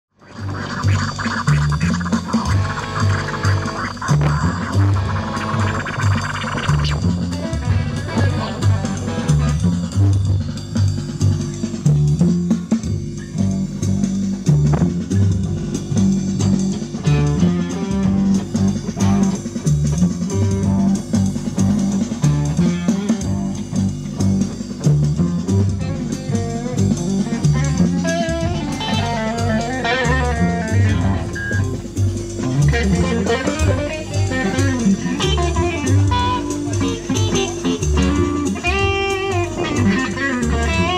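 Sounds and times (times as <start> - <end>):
band music: 0.1 - 40.9
melodic lead line: 0.2 - 8.8.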